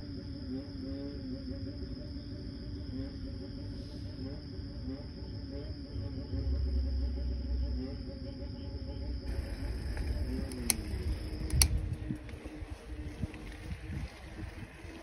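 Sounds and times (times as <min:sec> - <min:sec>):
insects buzzing: 0:00.0 - 0:15.0
wind rumble on microphone: 0:09.2 - 0:15.0
sharp clicks: 0:09.3 - 0:12.4.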